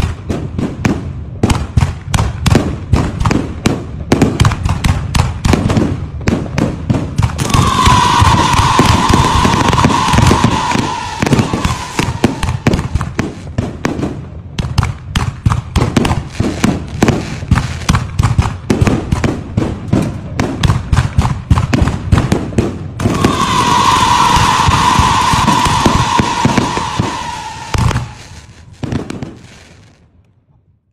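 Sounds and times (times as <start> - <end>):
firecracker bangs: 0.0 - 29.8
firework whistle: 7.2 - 13.3, 23.0 - 29.5
crackling shell bursts: 7.2 - 13.4, 23.0 - 28.7.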